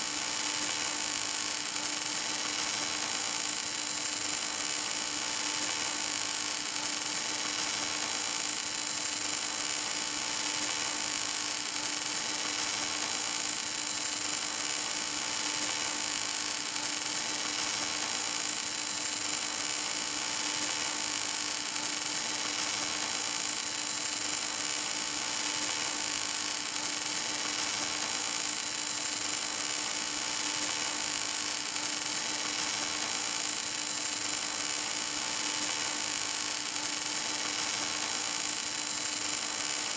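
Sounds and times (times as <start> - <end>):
welding arc hissing and humming: 0.0 - 39.9.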